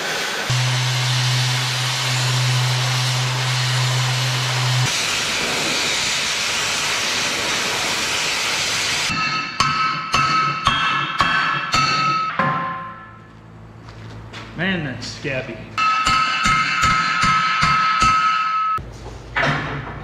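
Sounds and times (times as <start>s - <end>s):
cutting torch hissing: 0.0s - 9.1s
low steady hum: 0.5s - 4.9s.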